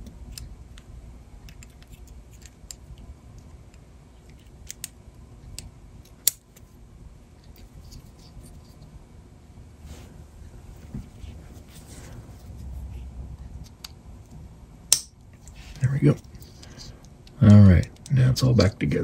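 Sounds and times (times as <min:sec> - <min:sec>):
small parts clicking and scraping: 0:01.4 - 0:05.0.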